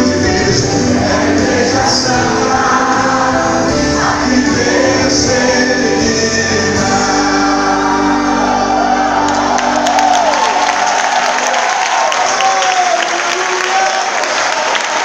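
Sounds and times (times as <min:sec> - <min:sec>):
man singing into a microphone: 0:00.0 - 0:08.4
many voices singing along: 0:00.0 - 0:09.5
amplified backing music: 0:00.0 - 0:11.5.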